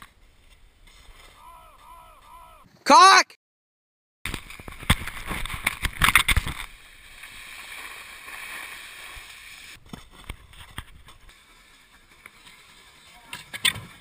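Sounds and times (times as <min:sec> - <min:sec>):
snowboard scraping over snow: 0:04.5 - 0:14.0.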